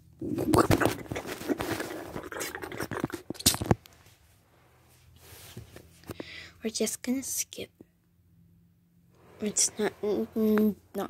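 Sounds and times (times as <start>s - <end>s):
handling noise of toy figures: 0.4s - 4.2s.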